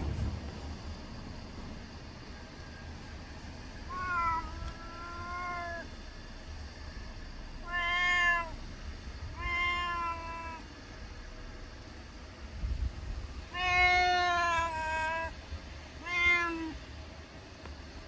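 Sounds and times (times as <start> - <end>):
cat meowing: 3.8 - 5.9, 7.6 - 8.6, 9.3 - 10.7, 13.5 - 15.4, 16.0 - 16.8.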